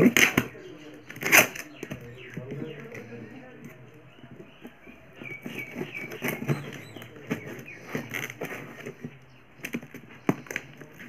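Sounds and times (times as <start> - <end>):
plastic crinkling: 0.0 - 11.0
knife slitting packing tape: 1.1 - 1.7.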